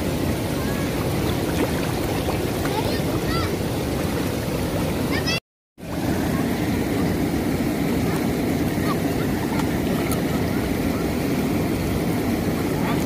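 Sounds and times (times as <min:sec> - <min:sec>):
churning lake water rushing: 0:00.0 - 0:13.0.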